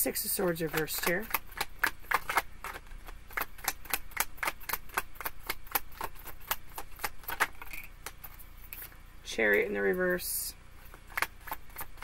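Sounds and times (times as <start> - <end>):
cards being shuffled: 0.4 - 9.0, 10.8 - 12.0.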